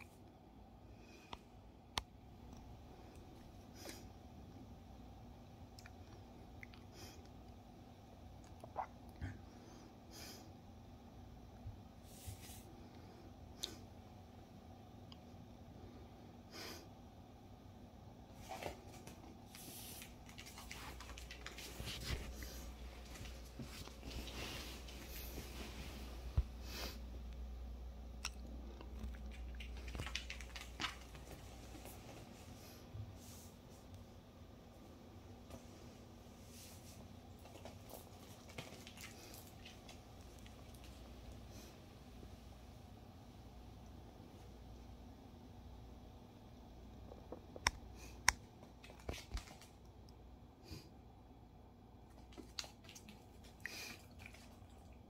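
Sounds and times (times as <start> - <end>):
soft rustle: 12.0 - 12.8, 18.3 - 27.0, 35.4 - 41.8.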